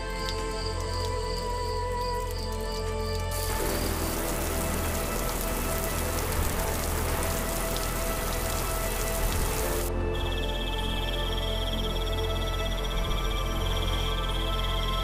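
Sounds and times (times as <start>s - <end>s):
steady rain falling: 0.0s - 9.9s
faint soft music: 0.0s - 15.0s.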